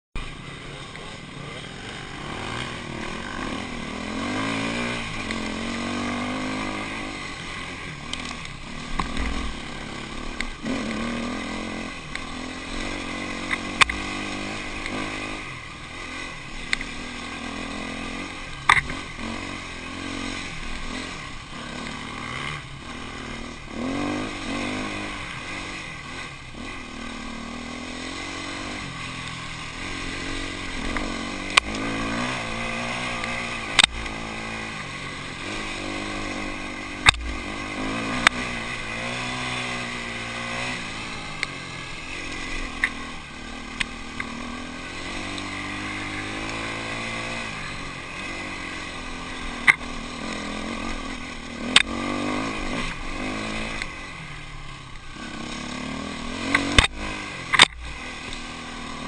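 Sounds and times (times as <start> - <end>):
motorcycle engine revving: 0.2 - 59.0.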